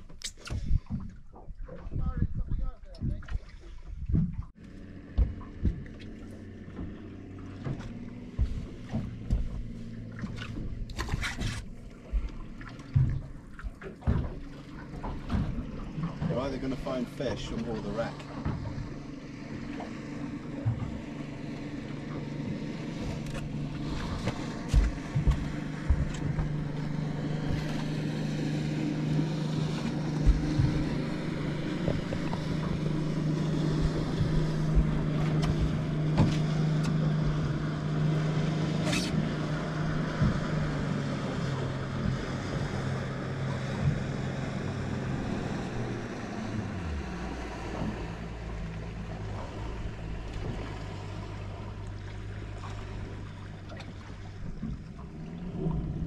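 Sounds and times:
outboard motor running: 0:00.0 - 0:56.0.

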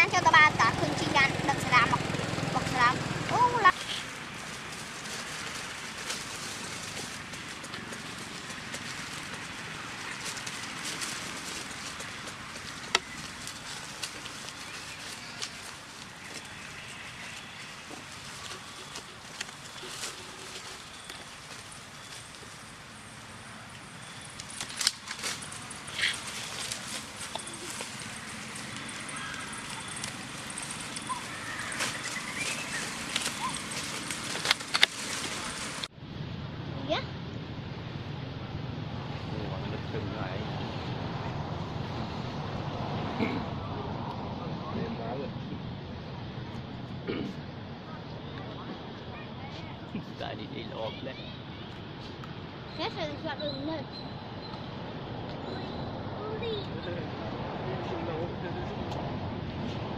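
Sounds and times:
dry leaves crackling and rustling: 0:00.0 - 0:35.9
steady outdoor hiss: 0:00.0 - 0:59.9.

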